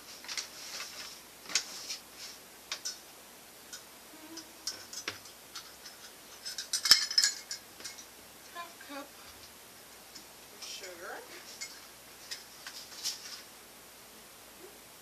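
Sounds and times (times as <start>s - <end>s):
measuring cups clinking: 4.7s - 8.1s.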